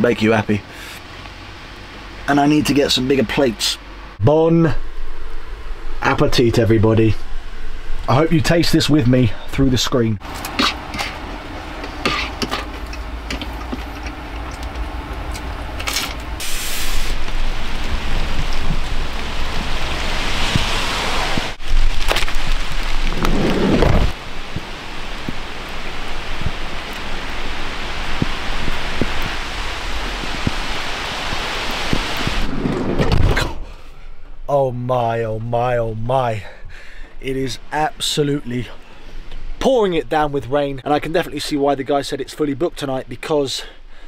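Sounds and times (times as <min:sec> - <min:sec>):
heavy rain on ground and vehicles: 0:00.1 - 0:03.4, 0:14.8 - 0:32.8
low rumble: 0:03.8 - 0:34.5.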